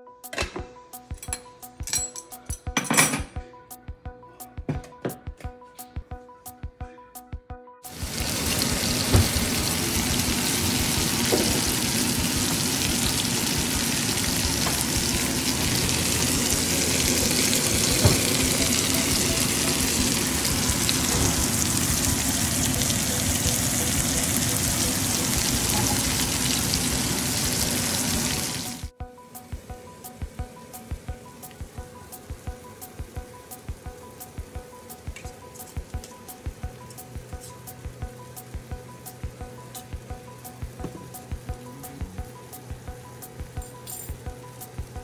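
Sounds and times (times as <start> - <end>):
faint background music: 0.0 - 45.0
chicken sizzling in oil: 7.9 - 28.9.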